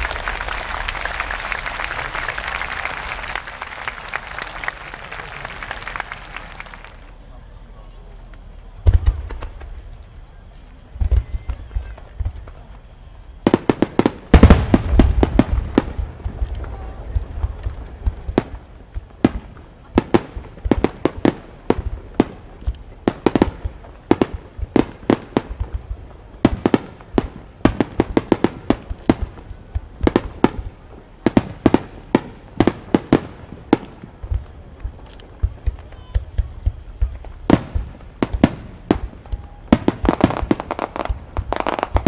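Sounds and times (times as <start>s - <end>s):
firework shells bursting: 13.4s - 42.0s.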